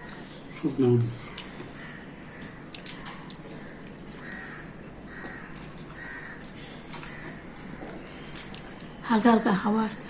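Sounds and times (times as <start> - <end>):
crow cawing: 1.7 - 2.6, 3.6 - 8.1.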